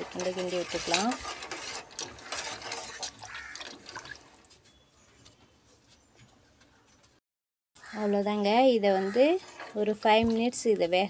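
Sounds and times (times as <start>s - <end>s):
spoon stirring pasta in pot: 0.0s - 4.5s
water sloshing: 0.0s - 4.6s.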